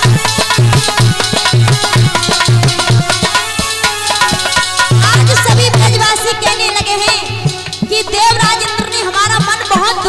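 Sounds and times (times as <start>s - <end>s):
hand drum beating: 0.0s - 10.0s
sustained melody: 0.2s - 8.2s.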